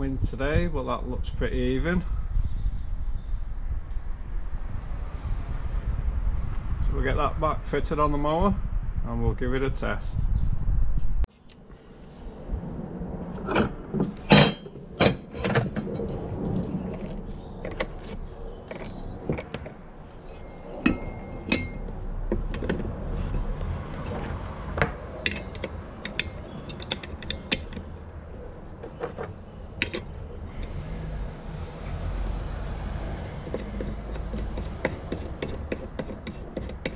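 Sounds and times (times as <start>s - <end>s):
metal clicks and knocks: 20.8s - 23.0s, 24.2s - 28.0s, 28.8s - 30.2s, 33.4s - 36.9s.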